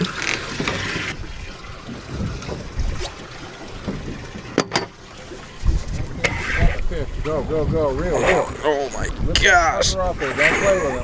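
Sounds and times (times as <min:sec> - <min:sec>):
water slapping against a boat hull: 0:00.0 - 0:09.4
wind buffeting the microphone: 0:01.1 - 0:04.4, 0:05.5 - 0:11.0.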